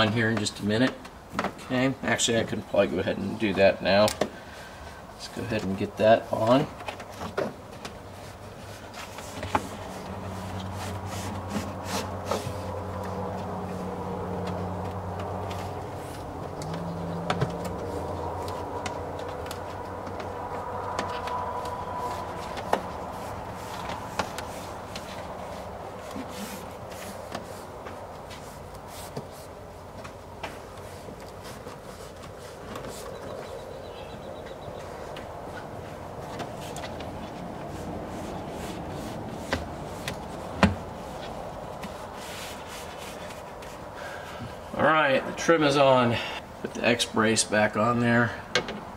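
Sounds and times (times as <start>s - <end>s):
handling noise: 5.4s - 44.5s.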